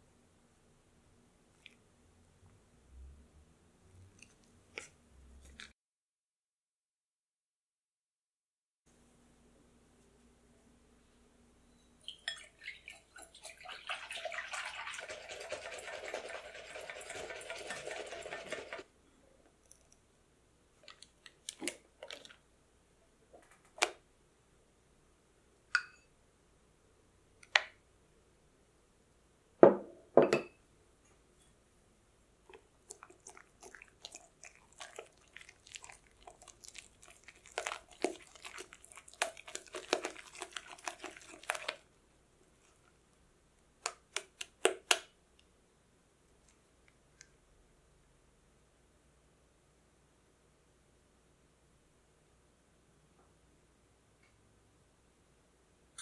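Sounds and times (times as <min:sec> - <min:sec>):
whisk beating cream in bowl: 0:13.2 - 0:18.8, 0:33.0 - 0:41.8.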